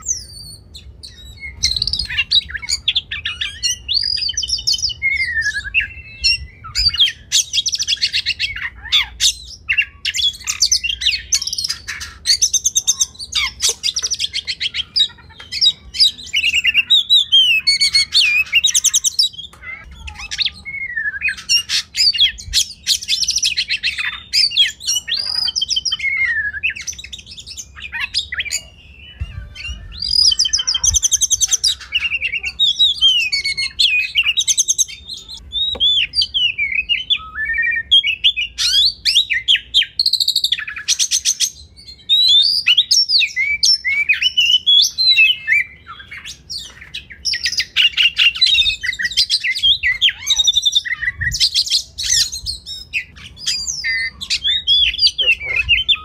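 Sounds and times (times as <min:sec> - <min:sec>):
bird singing varied song: 0:00.0 - 0:56.0.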